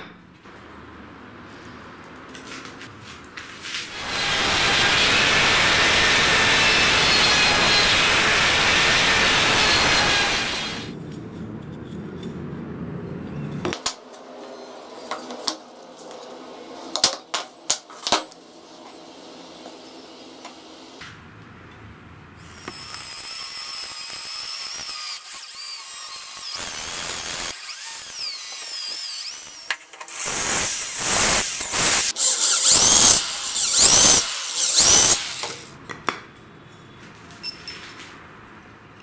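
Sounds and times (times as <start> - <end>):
power tool whining: 3.9 - 10.9, 22.4 - 35.7.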